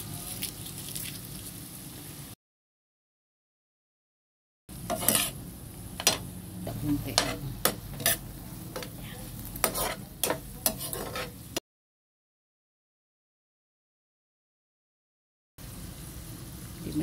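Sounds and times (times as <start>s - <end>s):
low sizzle: 0.0s - 2.4s, 4.7s - 11.6s, 15.6s - 17.0s
metal spatula scraping frying pan: 4.8s - 11.6s.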